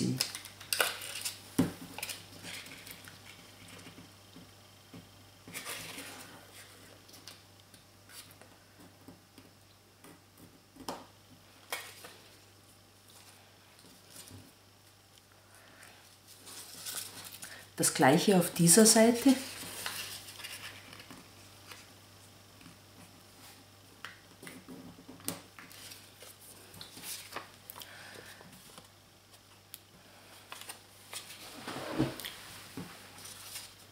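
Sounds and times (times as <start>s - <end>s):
paper rustling and crinkling: 5.4s - 7.4s, 16.2s - 17.6s, 19.2s - 21.9s, 25.6s - 29.4s, 30.4s - 33.9s.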